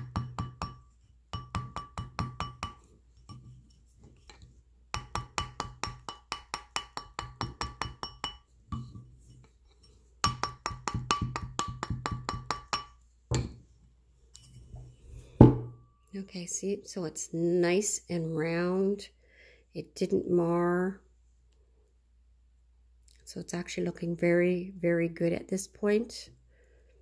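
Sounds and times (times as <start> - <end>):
mallet tapping metal wire coil: 0.0 - 3.5, 4.2 - 9.0, 10.2 - 13.5.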